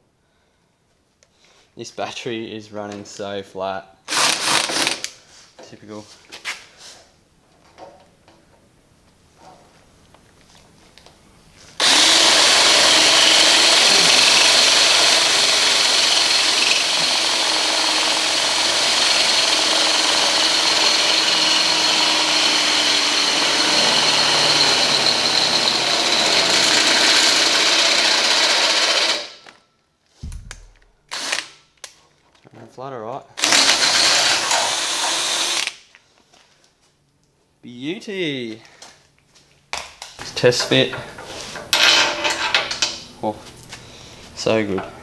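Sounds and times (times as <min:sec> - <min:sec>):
cordless drill drilling steel: 0:04.1 - 0:05.0, 0:11.8 - 0:29.4, 0:31.1 - 0:31.5, 0:33.4 - 0:35.8.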